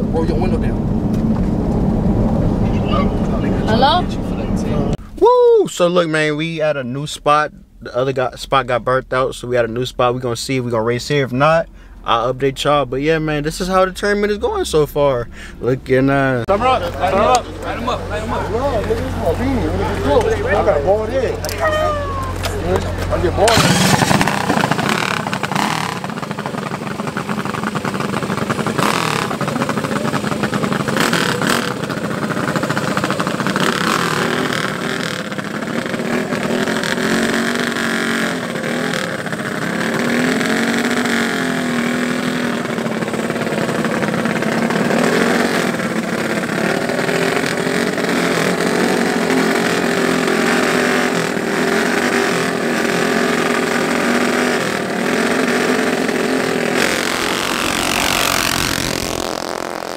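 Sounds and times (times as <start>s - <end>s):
mini bike engines revving: 16.5s - 59.9s.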